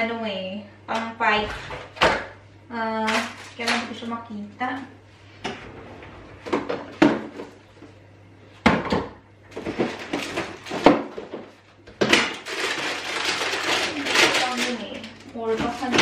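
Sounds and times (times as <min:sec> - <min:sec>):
kitchen things clattering: 0:08.7 - 0:16.0.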